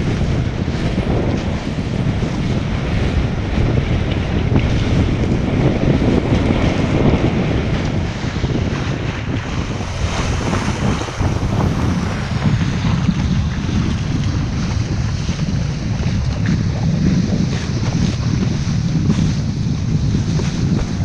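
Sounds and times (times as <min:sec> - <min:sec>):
wind buffeting microphone: 0:00.0 - 0:21.0
water spray splashing: 0:09.2 - 0:14.8.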